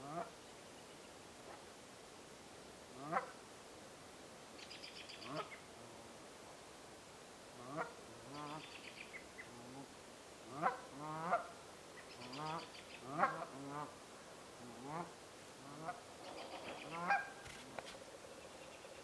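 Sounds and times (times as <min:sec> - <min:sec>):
geese honking: 0:12.3 - 0:13.9, 0:16.8 - 0:17.4.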